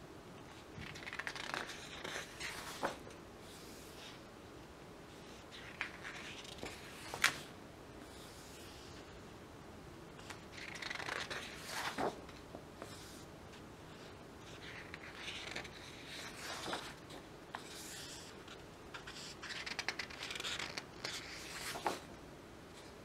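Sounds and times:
glossy pages rustling: 0:00.8 - 0:04.2, 0:10.2 - 0:13.2, 0:14.0 - 0:22.0.

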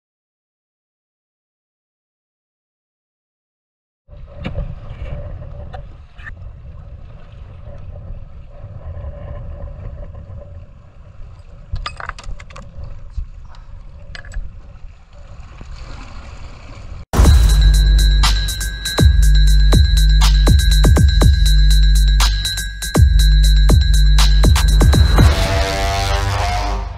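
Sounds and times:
wind buffeting microphone: 0:04.1 - 0:15.0.

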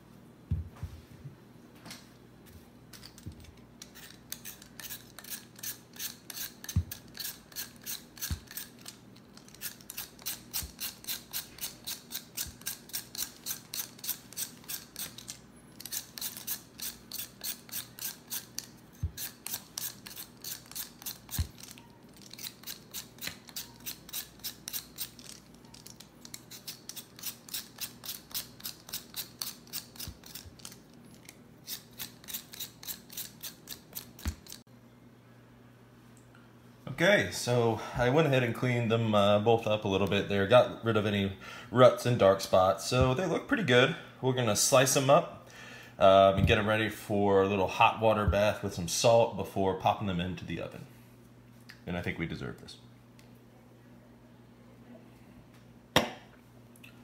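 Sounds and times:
blade scraping potato skin: 0:03.0 - 0:34.6.

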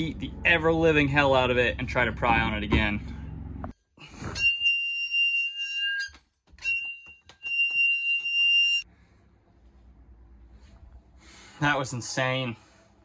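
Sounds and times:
metal squealing as it twists free: 0:04.3 - 0:08.8.

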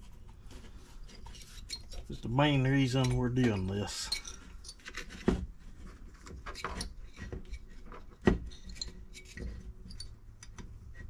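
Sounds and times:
small metal parts clinking: 0:02.9 - 0:05.1.

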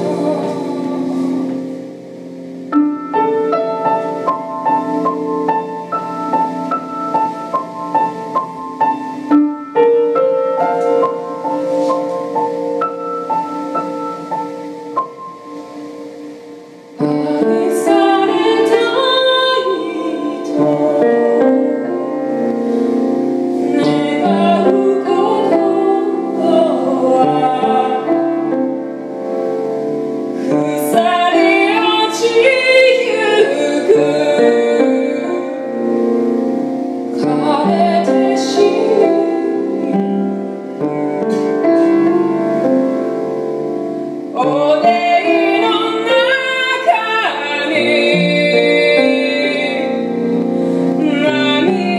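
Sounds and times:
woman singing: 0:00.0 - 0:01.9, 0:17.0 - 0:22.6, 0:23.5 - 0:29.1, 0:30.4 - 0:40.5, 0:44.3 - 0:51.9
piano accompaniment: 0:00.0 - 0:51.9.

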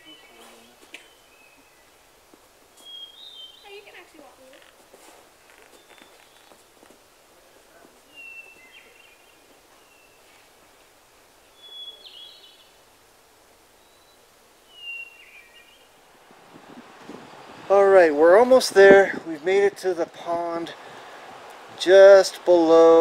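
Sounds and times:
faint steady hiss: 0:00.0 - 0:23.0
songbird whistling: 0:02.8 - 0:03.7, 0:05.7 - 0:06.6, 0:08.1 - 0:10.3, 0:11.5 - 0:12.7, 0:13.8 - 0:15.9.

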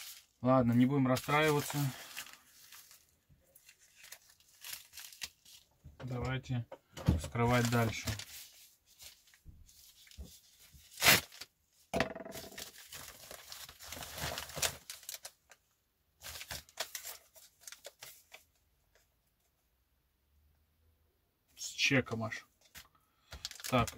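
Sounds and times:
packaging crinkling: 0:01.1 - 0:05.7, 0:12.4 - 0:15.5, 0:16.2 - 0:18.4, 0:23.3 - 0:23.9
paper mailer ripping: 0:10.9 - 0:11.4.

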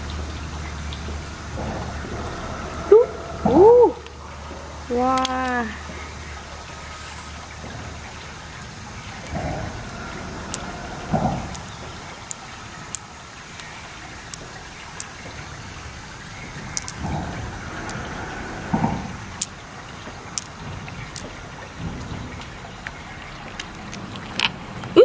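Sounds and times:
steady background hiss: 0:00.0 - 0:24.8
pearls clicking together: 0:16.8 - 0:17.0.

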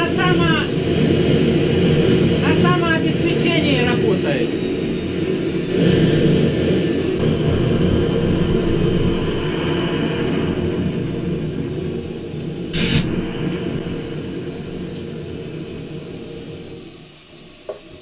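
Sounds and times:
turbojet engine running: 0:00.0 - 0:18.0
sharp hiss: 0:12.7 - 0:14.2.

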